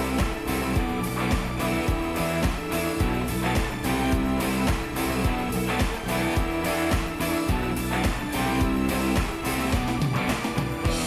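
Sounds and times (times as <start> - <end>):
rock band playing live: 0.0 - 11.0.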